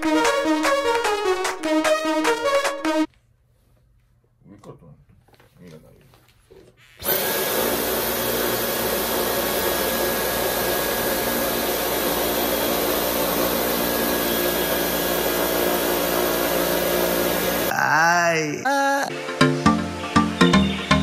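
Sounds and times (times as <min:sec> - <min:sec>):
vacuum cleaner running: 0:07.0 - 0:17.7.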